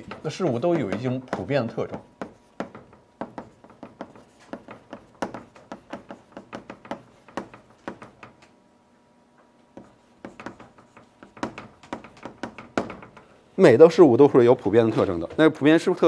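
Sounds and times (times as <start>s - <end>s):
chalk tapping on a blackboard: 0.0s - 8.4s, 9.7s - 13.3s.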